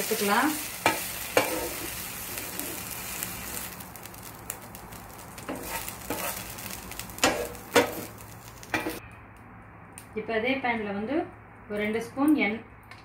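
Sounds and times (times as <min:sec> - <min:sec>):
faint sizzle of hot oil: 0:00.0 - 0:09.0
spatula scraping a frying pan: 0:00.2 - 0:03.8, 0:05.4 - 0:09.0.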